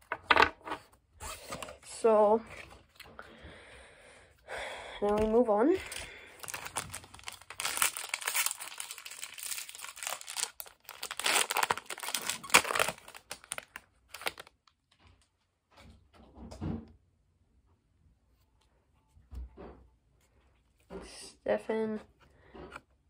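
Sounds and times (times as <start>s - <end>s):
foil wrapper tearing and crinkling: 5.8s - 14.8s.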